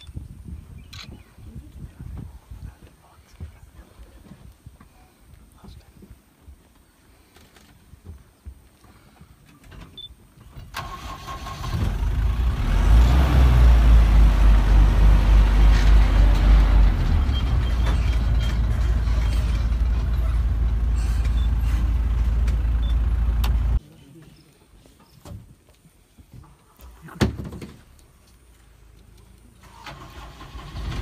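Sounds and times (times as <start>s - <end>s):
vehicle engine rumbling: 6.8s - 31.0s.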